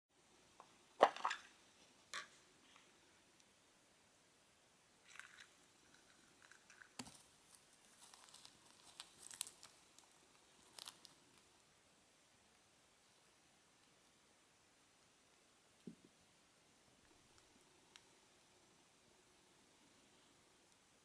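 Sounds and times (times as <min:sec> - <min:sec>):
insect scrabbling clicks and rustles: 0:05.0 - 0:11.5.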